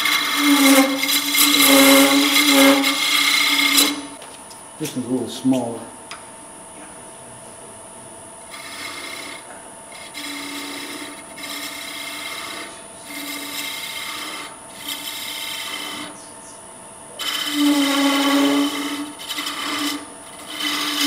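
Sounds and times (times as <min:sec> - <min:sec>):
lathe whine: 0:00.0 - 0:04.2, 0:04.8 - 0:21.0
tool cutting wood on lathe: 0:00.0 - 0:04.2, 0:08.5 - 0:16.2, 0:17.1 - 0:21.0.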